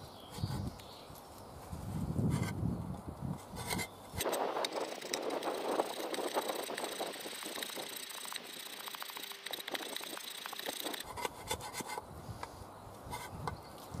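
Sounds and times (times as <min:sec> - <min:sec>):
steel blade scraping wood: 0:03.4 - 0:12.0.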